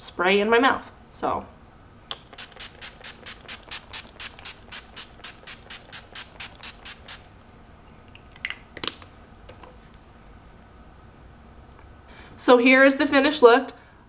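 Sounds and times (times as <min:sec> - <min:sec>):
spray bottle pumping: 0:02.1 - 0:07.2.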